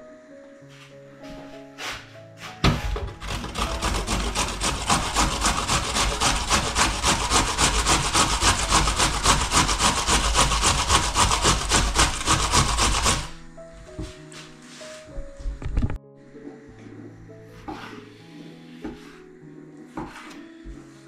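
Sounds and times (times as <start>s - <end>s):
vegetable grated on a grater: 3.2s - 13.4s.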